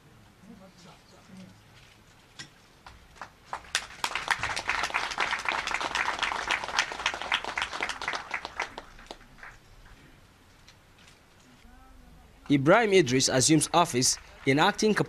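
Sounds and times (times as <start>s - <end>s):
small group applauding: 2.8s - 10.0s, 13.4s - 15.0s.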